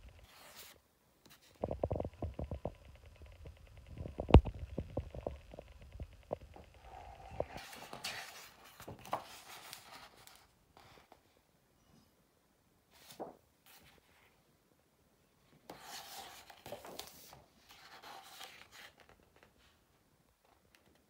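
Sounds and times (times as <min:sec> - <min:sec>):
book pages rustling: 0:00.2 - 0:02.7, 0:04.0 - 0:11.2, 0:15.7 - 0:19.7.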